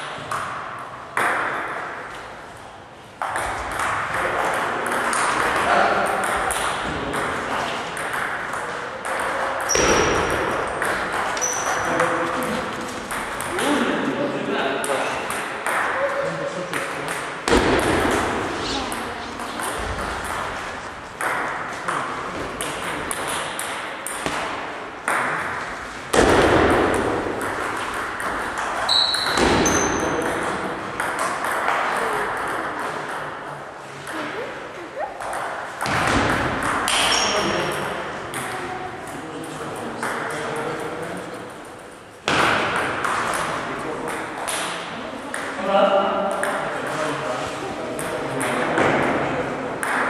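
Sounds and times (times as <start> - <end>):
heavier knocks echoing: 17.4 - 31.8, 35.2 - 37.1.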